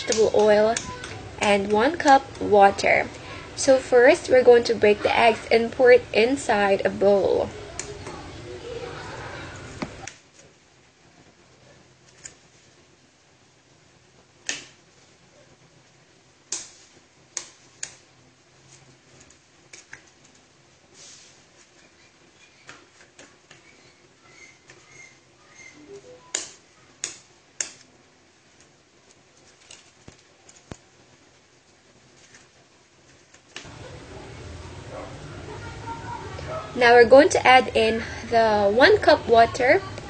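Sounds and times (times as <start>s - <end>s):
eggs cracking on a bowl: 0.0s - 3.4s, 21.6s - 31.1s.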